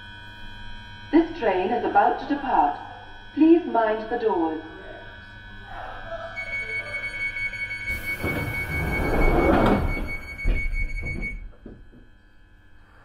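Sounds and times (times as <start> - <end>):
door closing warning tone: 6.3 - 12.2
sliding train doors shutting: 7.8 - 11.8.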